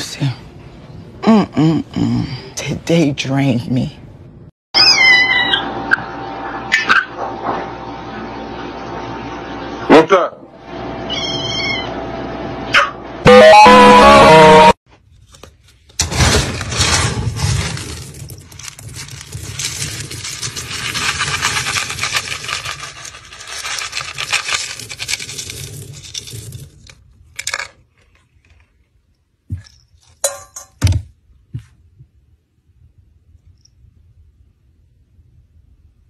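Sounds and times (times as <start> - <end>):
scoop rattling through kibble: 16.8 - 28.6.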